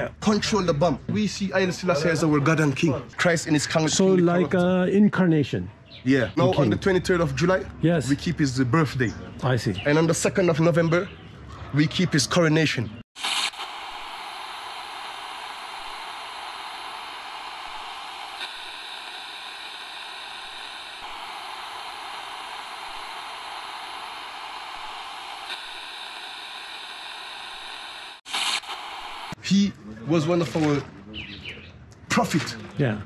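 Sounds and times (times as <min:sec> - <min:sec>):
static hiss: 0:13.2 - 0:29.4.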